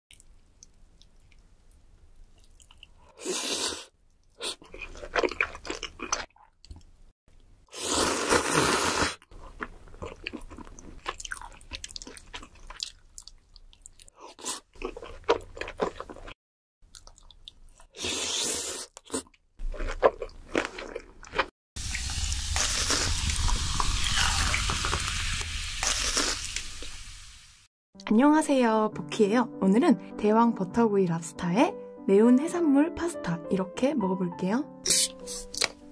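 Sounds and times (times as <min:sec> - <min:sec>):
wet crunchy chewing: 0:02.4 - 0:06.9, 0:08.1 - 0:25.2, 0:25.8 - 0:26.6.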